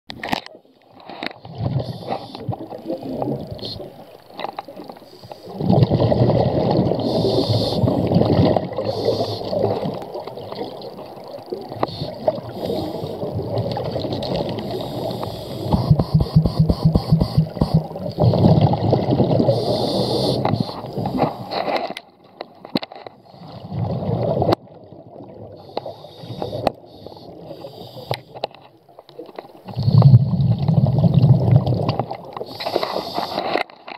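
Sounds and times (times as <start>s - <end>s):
scuba regulator bubbles: 1.4s - 21.7s, 23.2s - 33.6s.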